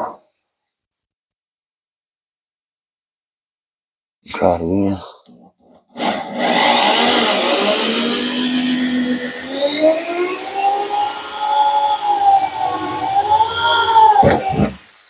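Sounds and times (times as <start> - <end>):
electric drill boring through metal: 5.9 - 15.0.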